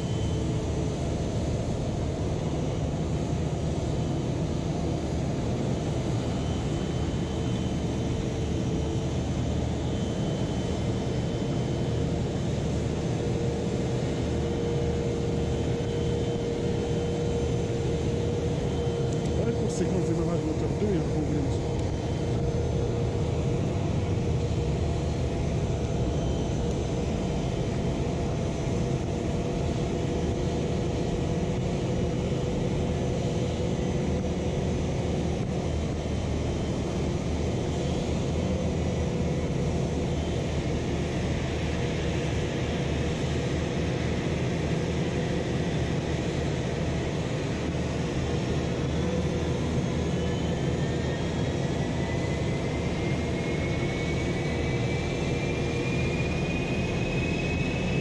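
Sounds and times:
jet engine spooling up: 0.0 - 58.0
jet whine: 0.0 - 58.0.

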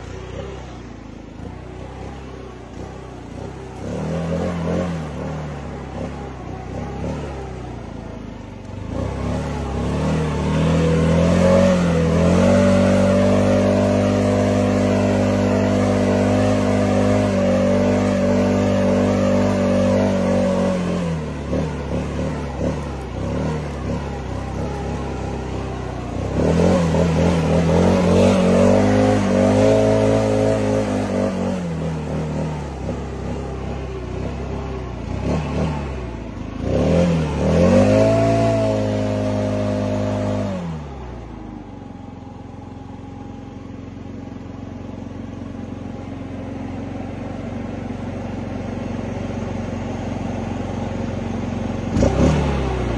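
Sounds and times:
leaf blower running: 0.0 - 52.9.

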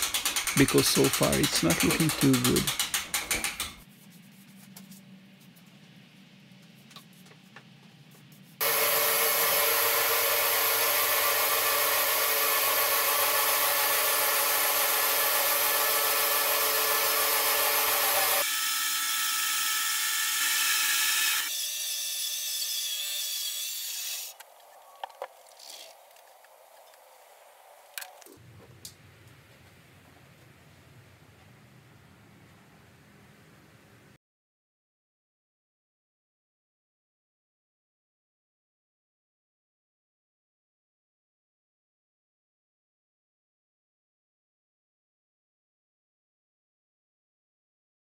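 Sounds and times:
bandsaw sawing log: 0.0 - 3.8, 8.6 - 24.4.

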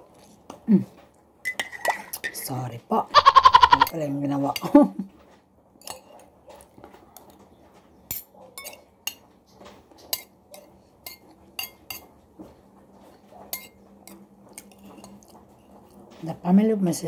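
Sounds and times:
cutlery clinking against a dish: 1.4 - 2.4, 5.8 - 7.4, 8.1 - 16.0.

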